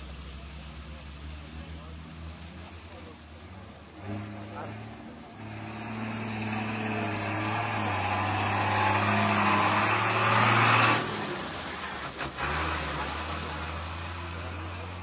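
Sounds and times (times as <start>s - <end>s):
road noise: 0.0s - 15.0s
vehicle engine hum: 0.0s - 15.0s.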